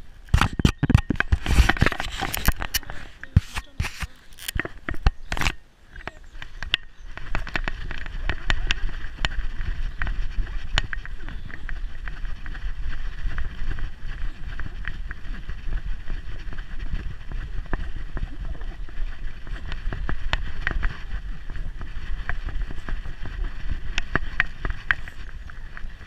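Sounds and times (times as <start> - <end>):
wind rumble: 0.0 - 26.0
camera handling noise: 0.2 - 5.6
light clicks and ticks: 0.2 - 9.4.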